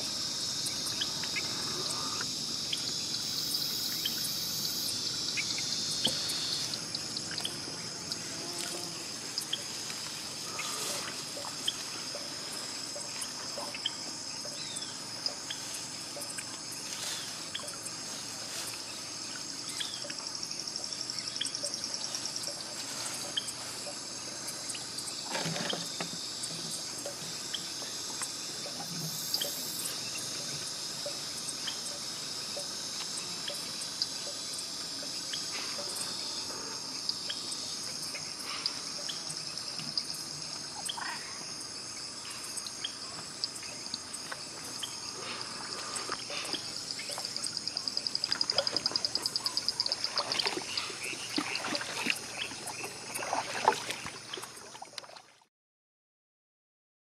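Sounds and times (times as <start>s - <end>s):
high-pitched insect chorus: 0.0s - 55.2s
small water splashes: 45.5s - 55.5s
water dripping: 46.2s - 55.2s.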